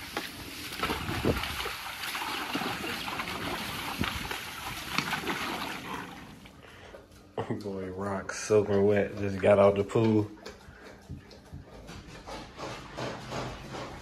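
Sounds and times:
water splashing in a plastic pool: 0.0 - 6.6.

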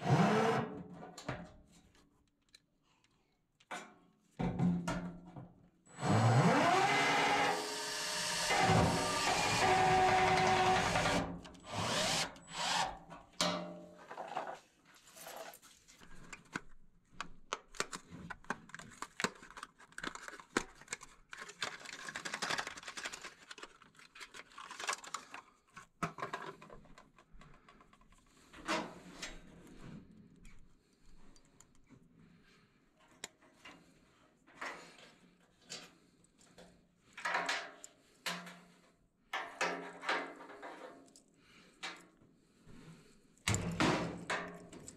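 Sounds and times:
cordless drill driving screw into metal: 6.0 - 13.1.

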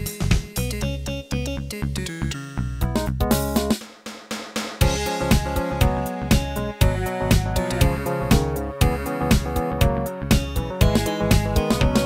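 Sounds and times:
background music with drum beat: 0.0 - 1.0, 2.8 - 12.0
keyboard notes: 4.8 - 12.0.

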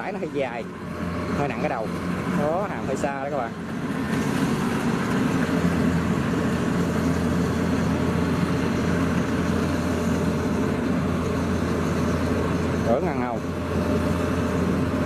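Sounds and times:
combine harvester diesel drone: 0.0 - 15.0.

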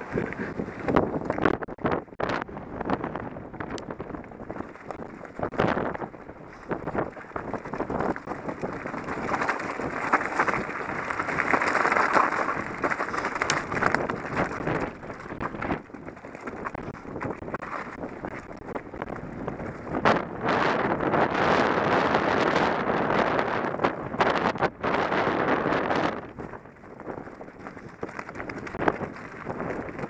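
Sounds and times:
bike rattling and knocking: 0.0 - 30.0
wind buffeting microphone: 0.0 - 30.0
tyres crunching over stones: 4.4 - 20.0, 26.2 - 30.0.

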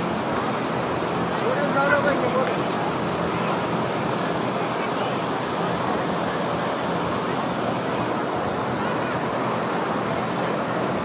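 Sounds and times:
faint murmur of crowd voices: 0.0 - 11.0
steady rushing outdoor noise: 0.0 - 11.0.

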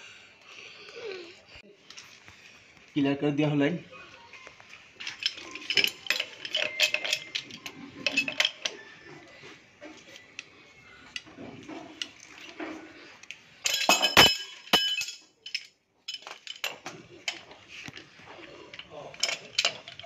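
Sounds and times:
pipe wrench clinking on metal pipe: 5.0 - 8.8, 13.6 - 17.5, 18.7 - 20.0
metallic clatter: 5.0 - 8.9, 13.6 - 20.0.

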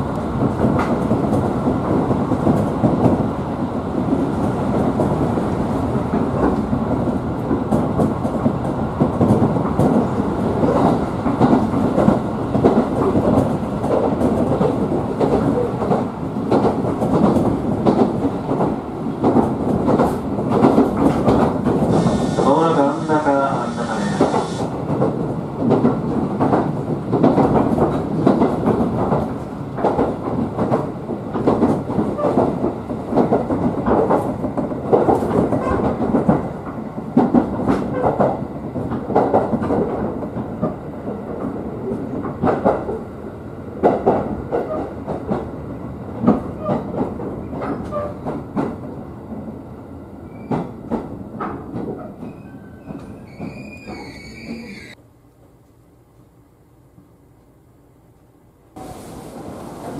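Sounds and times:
train rumble inside passenger car: 0.0 - 55.0, 55.6 - 59.9
high brake squeal: 22.0 - 24.7, 52.3 - 55.0.

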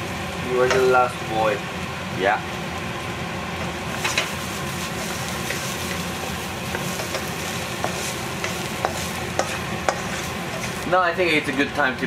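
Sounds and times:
onions sizzling in a wok: 0.0 - 11.9
wooden spatula scraping wok: 3.6 - 10.9
spatula knocking against wok: 6.7 - 10.8.

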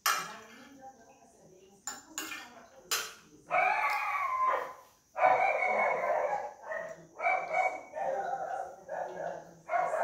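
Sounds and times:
dog barking: 4.5 - 10.0.

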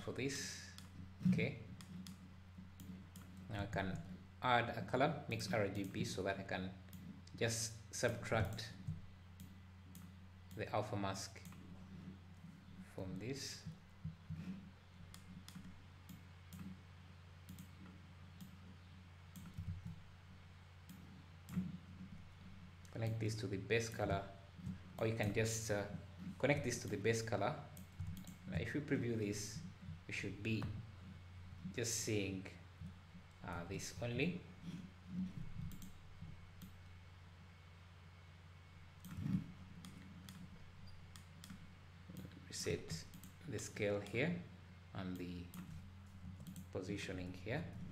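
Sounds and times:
steady low hum: 0.0 - 47.9
computer mouse clicking: 1.7 - 4.1, 13.6 - 16.8, 17.4 - 20.0, 20.8 - 22.1, 27.7 - 28.4, 35.1 - 36.8, 39.0 - 42.4, 43.1 - 43.4, 45.5 - 46.7
sharp computer mouse clicks: 17.4 - 18.6, 27.8 - 28.4, 35.6 - 36.0, 46.4 - 46.7.

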